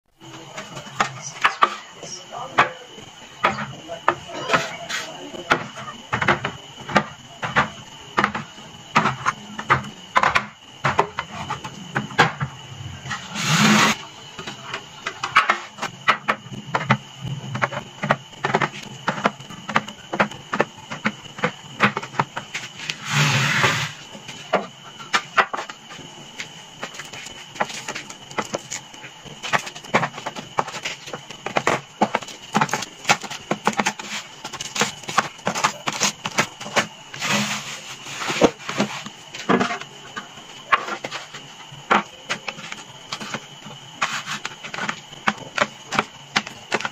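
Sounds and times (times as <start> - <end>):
noisy scrapes: 12.8 - 14.1, 22.7 - 24.0, 37.2 - 39.0.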